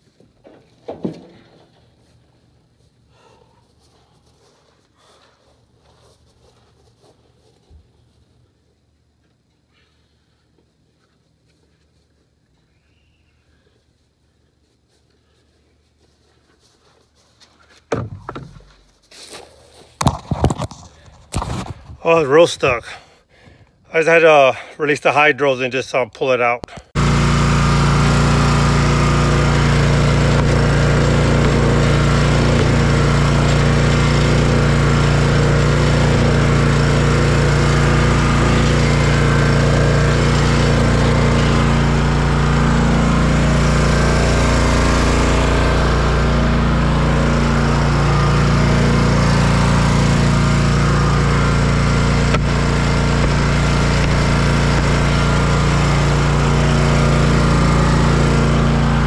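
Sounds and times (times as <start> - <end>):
riding mower engine running: 20.0 - 22.8, 26.9 - 59.0.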